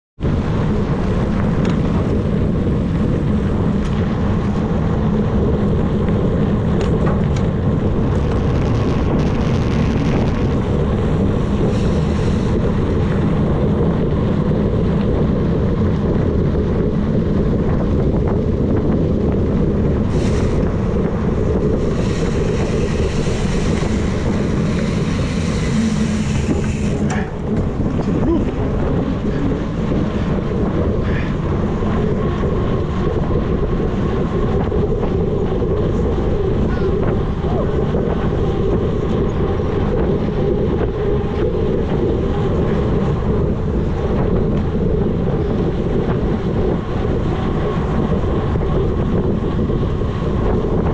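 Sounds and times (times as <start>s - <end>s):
bike tyre rumbling on dirt: 0.2s - 50.9s
wind buffeting microphone: 0.2s - 50.9s.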